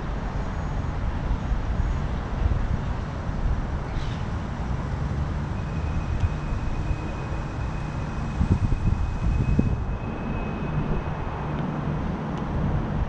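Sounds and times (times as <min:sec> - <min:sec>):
distant road traffic: 0:00.0 - 0:13.0
wind on microphone: 0:06.0 - 0:13.0.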